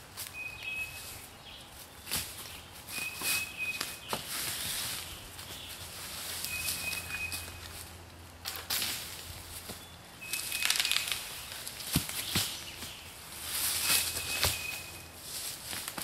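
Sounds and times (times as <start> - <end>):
footsteps in dry leaves: 0.0 - 16.0
bird whistling single note: 6.5 - 7.6
sticks being cleared: 10.2 - 12.6.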